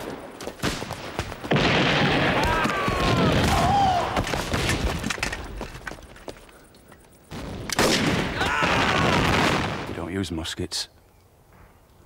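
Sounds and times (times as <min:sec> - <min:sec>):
musket and rifle shots: 0:07.3 - 0:09.9.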